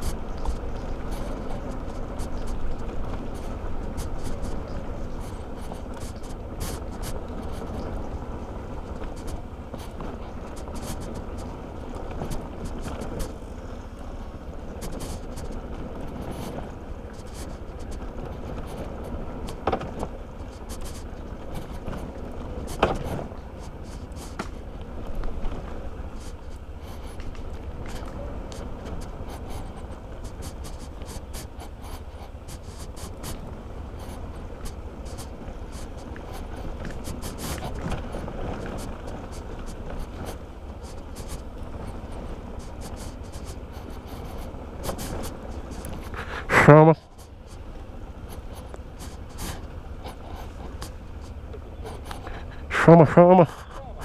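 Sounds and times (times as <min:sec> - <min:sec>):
wind and road noise: 0:00.0 - 0:54.0.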